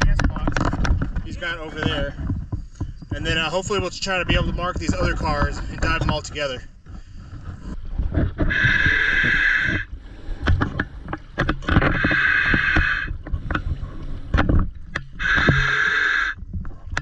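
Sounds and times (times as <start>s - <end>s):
scuba regulator hissing: 8.5s - 9.9s, 11.9s - 13.1s, 15.2s - 16.4s.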